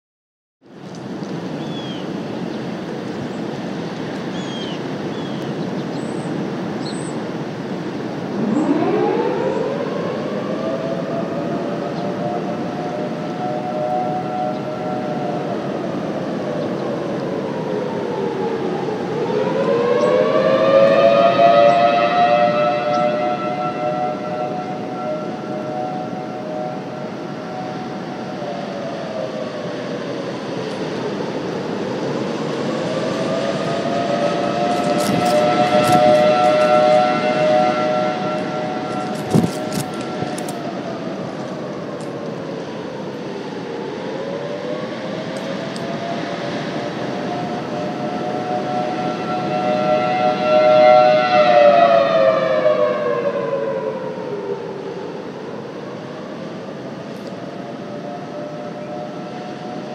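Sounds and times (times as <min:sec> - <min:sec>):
warning siren: 0:00.7 - 0:59.9
wind noise on microphone: 0:00.7 - 0:59.9
warning siren winding up: 0:18.2 - 0:28.1, 0:32.5 - 0:42.1.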